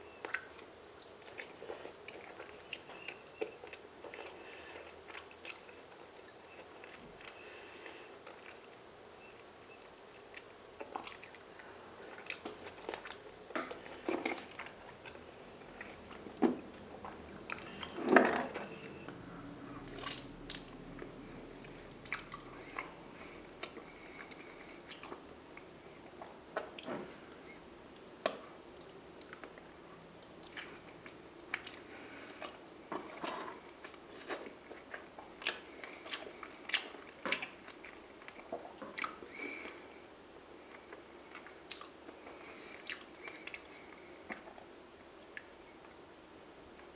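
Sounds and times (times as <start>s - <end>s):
wet chewing and mouth smacks: 0.2s - 7.4s, 9.8s - 18.0s, 19.8s - 27.0s, 27.9s - 39.8s, 40.7s - 44.6s.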